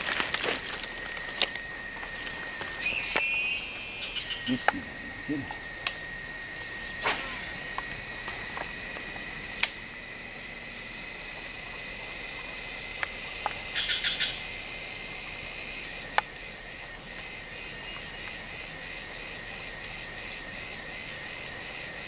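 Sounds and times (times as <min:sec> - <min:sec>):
rapid chirps: 0:00.0 - 0:09.2
insect chorus: 0:00.0 - 0:22.0.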